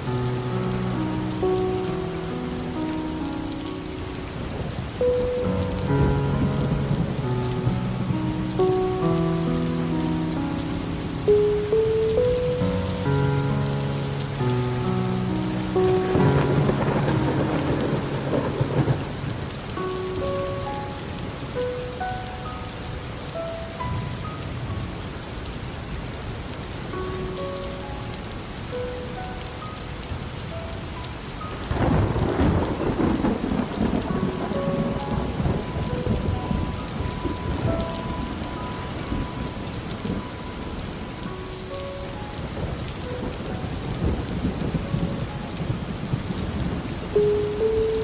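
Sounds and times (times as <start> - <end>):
steady rain: 0.0 - 48.0
thunder rumbling: 4.2 - 22.1, 31.4 - 48.0.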